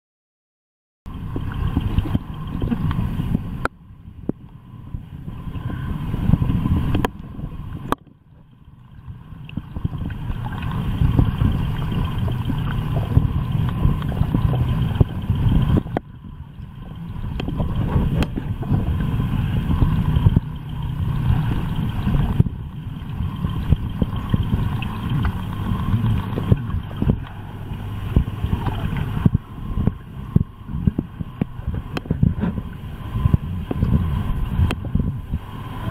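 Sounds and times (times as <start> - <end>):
muffled underwater rumble: 1.1 - 35.9.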